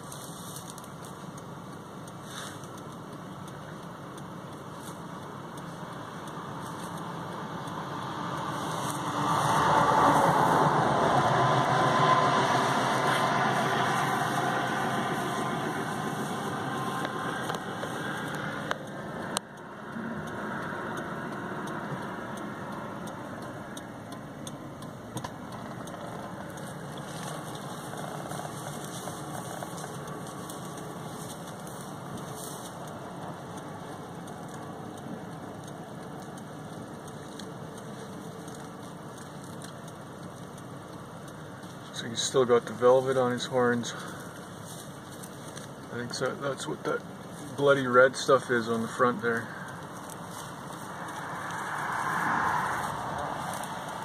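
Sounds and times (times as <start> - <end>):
car engine running inside cabin: 0.0 - 54.0.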